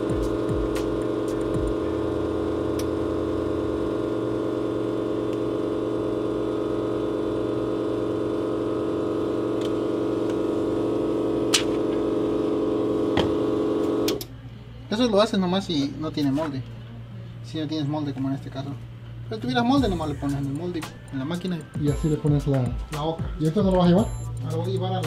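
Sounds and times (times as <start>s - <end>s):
electrical machine hum: 0.0s - 15.0s.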